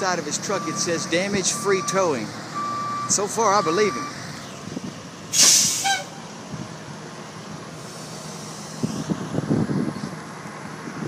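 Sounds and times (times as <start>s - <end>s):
tow truck diesel engine running: 0.0s - 11.0s
wind buffeting microphone: 8.7s - 11.0s.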